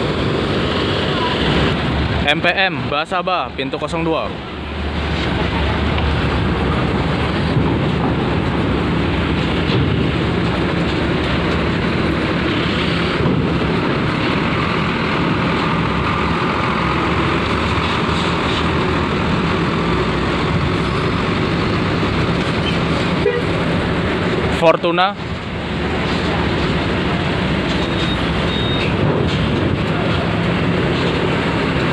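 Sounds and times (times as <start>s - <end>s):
bus engine running: 0.0s - 31.9s
tyre noise on metal deck: 25.2s - 31.9s.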